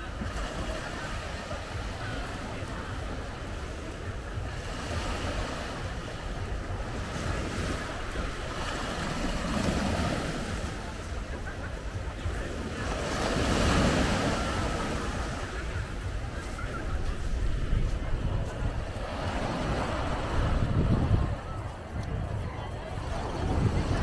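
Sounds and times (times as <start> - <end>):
wind rumble on microphone: 13.6 - 24.0.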